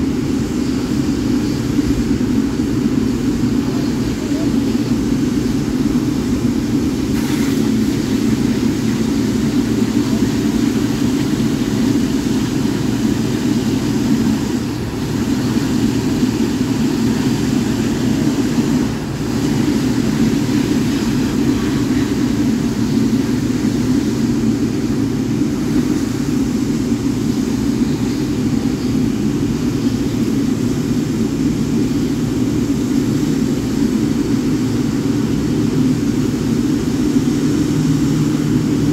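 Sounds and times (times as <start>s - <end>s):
jet engines droning: 0.0s - 38.9s.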